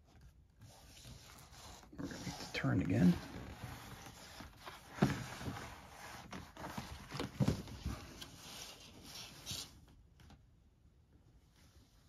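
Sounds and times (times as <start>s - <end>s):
paper map rustling: 0.0s - 10.6s.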